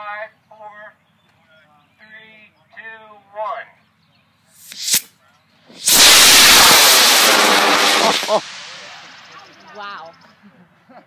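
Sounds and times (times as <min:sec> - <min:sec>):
rocket motor rushing burn: 0:04.6 - 0:05.1, 0:05.7 - 0:09.6
sharp crack: 0:04.6 - 0:05.1, 0:05.7 - 0:09.8.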